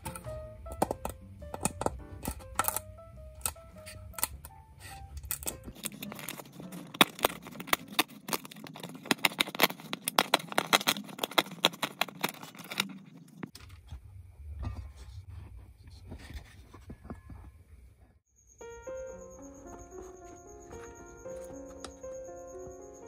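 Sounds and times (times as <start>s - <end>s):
background music: 0.0s - 7.8s.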